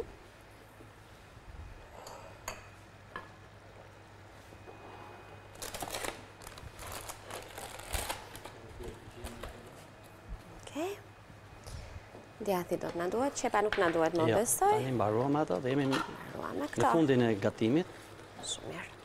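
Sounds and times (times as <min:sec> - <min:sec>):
paper package rustling: 0:05.5 - 0:08.6.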